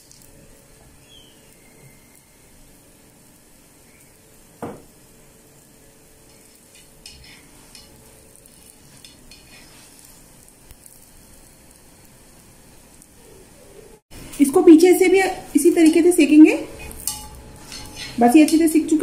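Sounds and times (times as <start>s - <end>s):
paratha sizzling in oil: 0.0s - 19.0s
spatula knocking on griddle: 4.6s - 4.9s
spatula scraping griddle: 6.2s - 11.8s, 16.6s - 19.0s.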